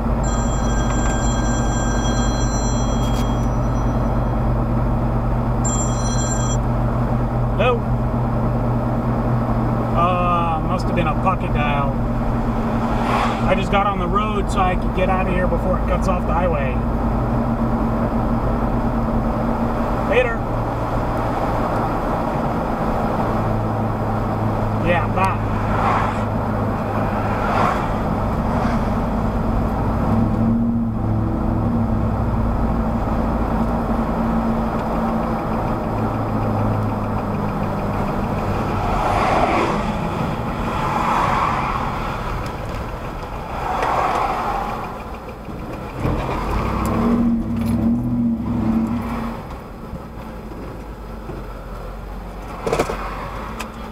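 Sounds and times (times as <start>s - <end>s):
car engine hum: 0.0s - 53.9s
tyre and road noise: 0.0s - 53.9s
whooshes: 12.6s - 13.6s.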